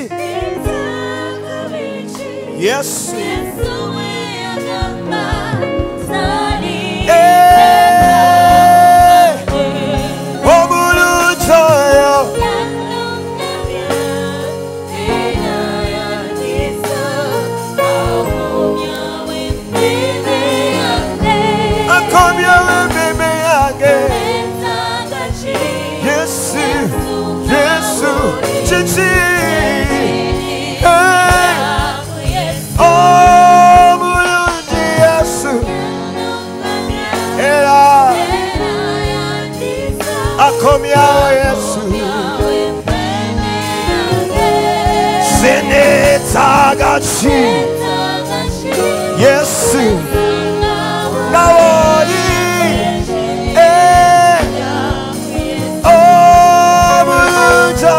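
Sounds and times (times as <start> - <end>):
man singing lead: 0.0 - 0.7, 2.5 - 3.7, 6.7 - 12.8, 20.5 - 24.6, 25.7 - 35.9, 37.3 - 38.4, 40.3 - 42.8, 43.9 - 47.8, 48.8 - 57.9
backing singers: 0.0 - 57.9
instrumental accompaniment: 0.0 - 57.9.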